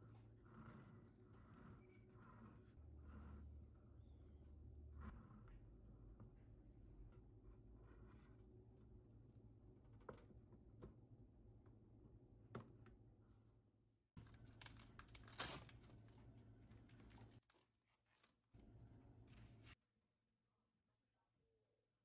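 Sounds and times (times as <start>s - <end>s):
wrapping rustling: 14.2s - 18.5s.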